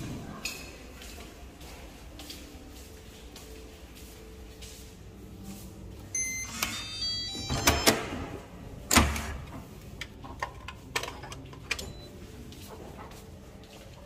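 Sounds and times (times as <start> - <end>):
electronic lock chirps: 6.2 - 8.2.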